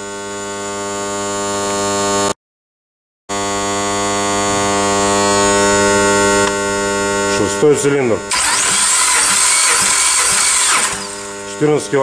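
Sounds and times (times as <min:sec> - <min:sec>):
electric motor hum: 0:03.3 - 0:11.6.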